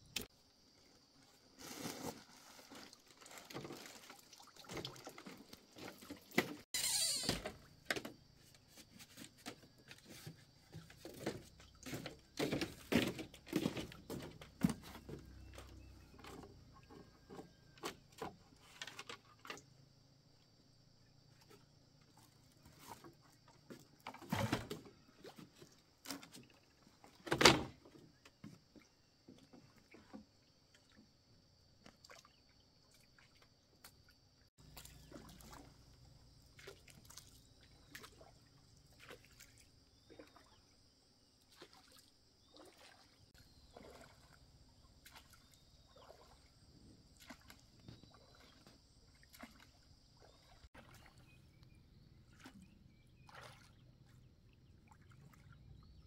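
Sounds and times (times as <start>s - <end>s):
oars splashing in water: 2.0s - 8.2s, 9.2s - 19.8s, 31.8s - 56.0s.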